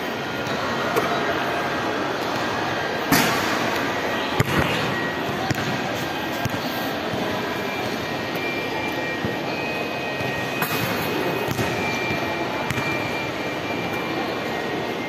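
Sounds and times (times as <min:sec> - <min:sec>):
steady background din: 0:00.0 - 0:15.0
basketball striking hoop: 0:04.4 - 0:05.8, 0:10.6 - 0:11.9, 0:12.6 - 0:13.0
basketball bouncing on hard floor: 0:12.7 - 0:12.9.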